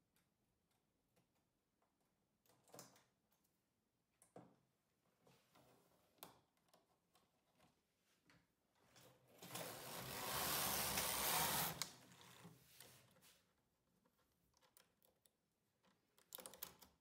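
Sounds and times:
knitting machine carriage sliding: 9.3s - 13.0s.

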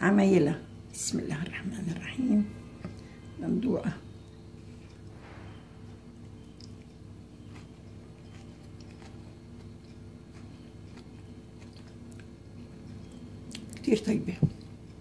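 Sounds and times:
steady low hum: 0.0s - 15.0s
person chewing crunchy food: 6.1s - 13.8s.

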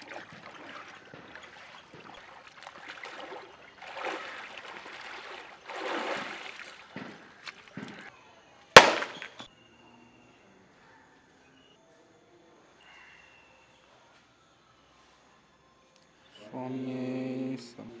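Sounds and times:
water splashing and sloshing: 0.0s - 8.1s
sharp knock: 8.8s - 9.4s.

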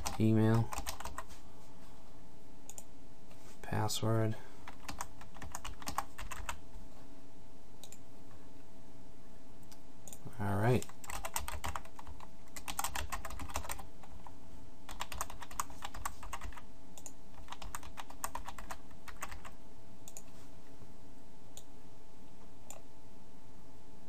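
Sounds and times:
computer keyboard typing: 0.0s - 1.3s, 4.6s - 6.6s, 10.1s - 14.3s, 14.9s - 20.3s.

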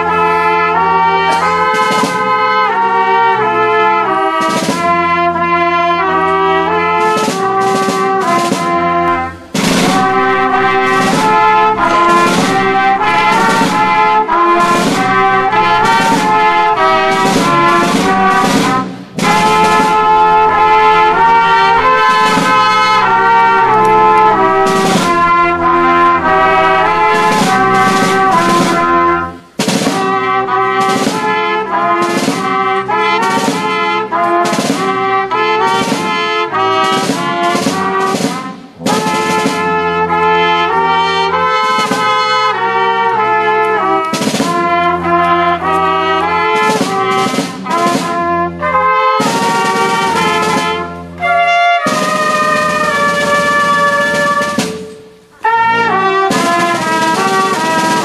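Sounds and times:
brass band playing slow piece: 0.0s - 58.0s.

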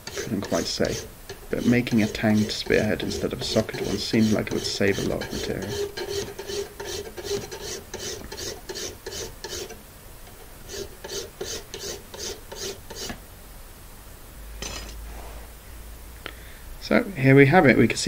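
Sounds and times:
file rasping on metal: 0.0s - 9.8s, 10.7s - 13.2s.

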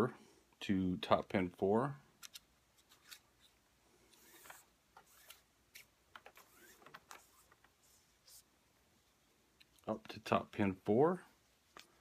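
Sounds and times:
faint rustling and clicks of cord: 2.1s - 10.0s, 11.4s - 12.0s.

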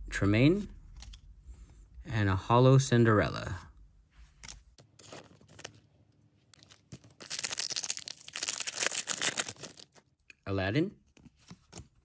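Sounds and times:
foil wrapper crinkling and tearing: 4.9s - 5.9s, 6.5s - 10.1s.

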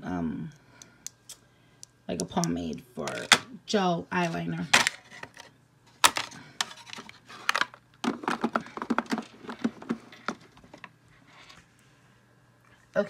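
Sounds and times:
makeup cases clicking and clattering: 3.1s - 3.5s, 4.7s - 10.9s.

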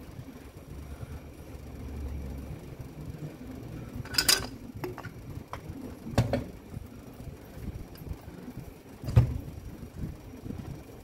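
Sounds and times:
metal parts clinking and knocking: 4.0s - 5.2s.

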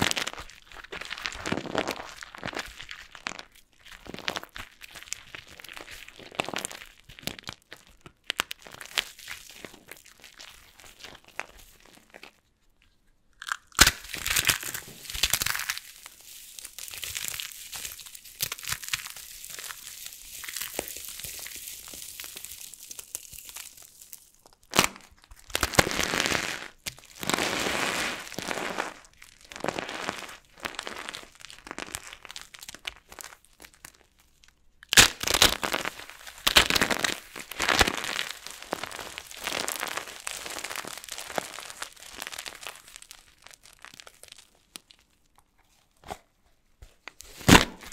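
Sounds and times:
soap crunching and crackling: 0.0s - 47.9s
sharp crack of soap: 13.4s - 15.8s, 34.8s - 37.2s.

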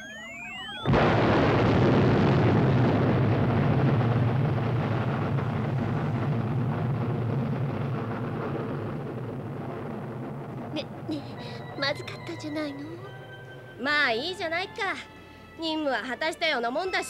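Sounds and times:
sliding electronic tones: 0.0s - 1.0s
rocket exhaust roar: 0.8s - 11.8s.

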